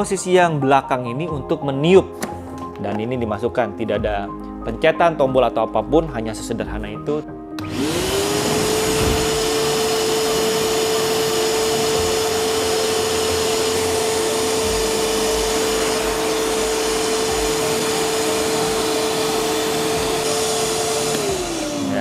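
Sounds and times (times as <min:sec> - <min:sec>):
vacuum cleaner motor whining: 0:07.6 - 0:22.0.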